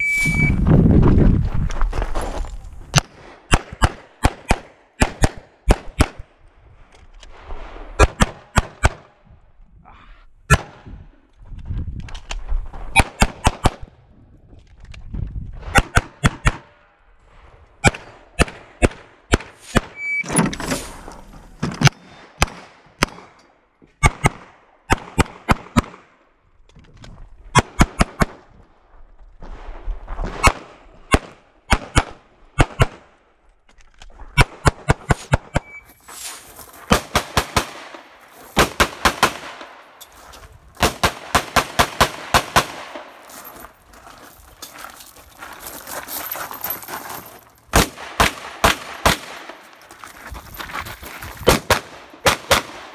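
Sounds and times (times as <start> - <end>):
rapid pistol shots: 36.9 - 39.8, 40.8 - 43.1, 47.7 - 49.6, 51.5 - 52.9.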